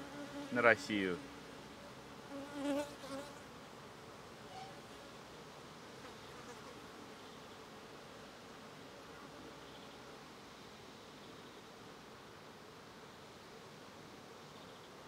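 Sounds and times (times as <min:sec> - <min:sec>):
honeybees buzzing: 0:00.0 - 0:10.2.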